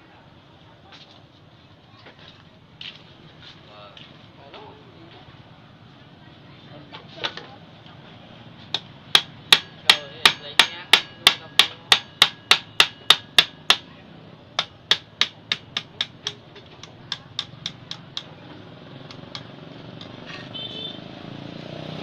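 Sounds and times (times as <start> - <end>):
hammer striking metal: 8.7 - 13.9, 14.6 - 18.4, 19.0 - 20.4.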